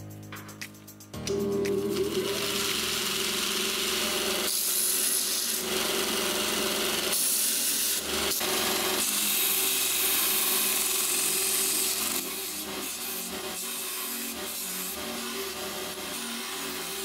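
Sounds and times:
grinder motor hum: 1.2 - 13.6.

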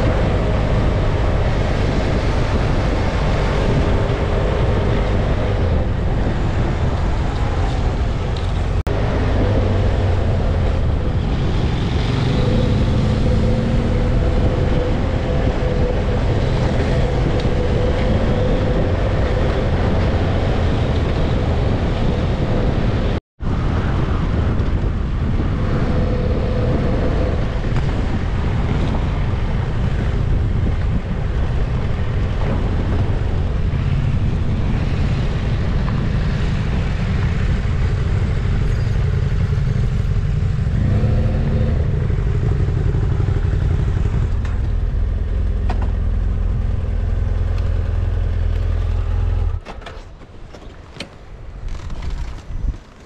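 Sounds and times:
motorcycle engine humming: 0.0 - 51.8
tyre and road noise: 0.0 - 53.0
wind rushing over microphone: 0.0 - 53.0.

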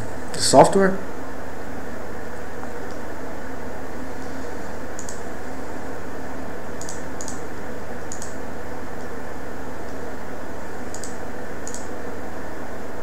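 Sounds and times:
background hiss and hum: 0.0 - 13.0
computer mouse clicks: 5.0 - 5.2, 6.8 - 7.4, 8.0 - 8.4, 10.9 - 11.9.

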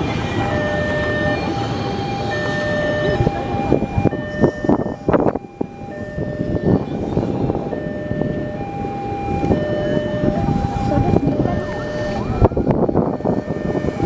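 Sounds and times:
electric train running slowly: 0.0 - 14.0
two-tone electronic signal: 9.4 - 12.5.

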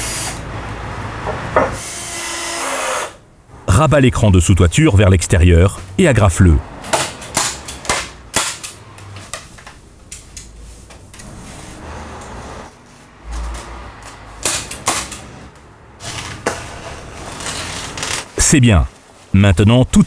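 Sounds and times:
membrane rustling: 16.0 - 19.4.

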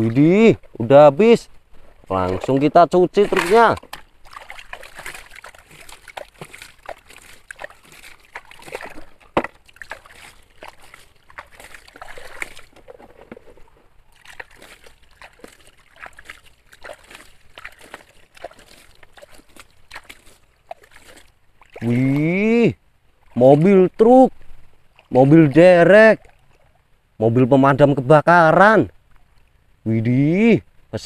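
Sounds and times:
water sloshing and splashing: 0.0 - 27.0
pebbles and plastic clattering: 12.6 - 13.9.

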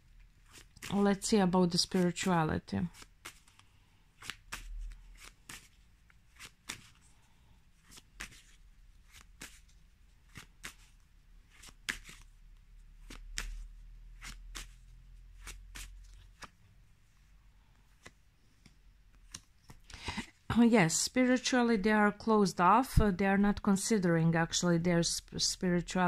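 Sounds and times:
cards being shuffled: 0.3 - 7.1, 7.8 - 16.7, 17.8 - 20.3.

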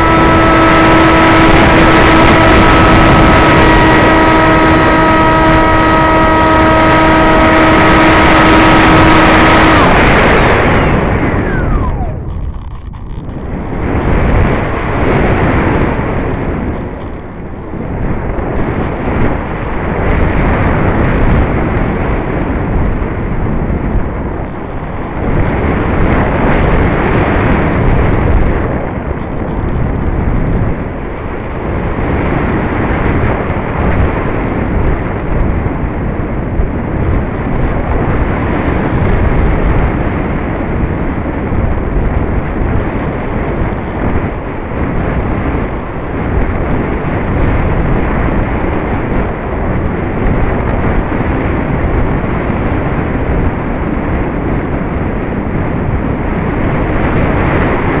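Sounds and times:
faint high whine: 0.0 - 18.2
wind rushing over camera: 0.0 - 58.0.

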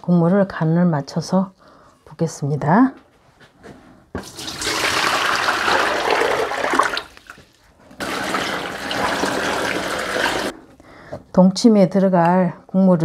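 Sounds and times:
water pouring into plastic tub: 4.2 - 10.6.

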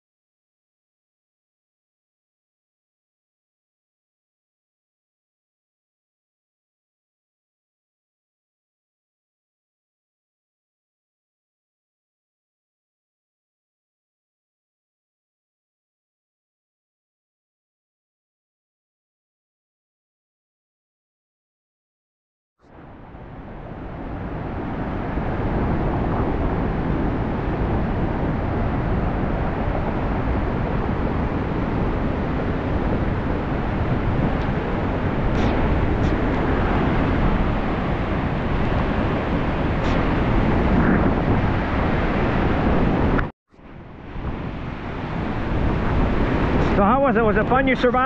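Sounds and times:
rushing river water: 22.7 - 48.0
waterfall roaring: 22.9 - 43.2, 43.9 - 48.0.

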